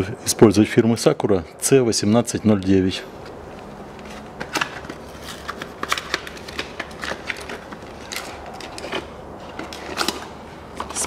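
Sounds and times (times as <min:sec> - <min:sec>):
cardboard packaging crackling: 0:03.5 - 0:11.0.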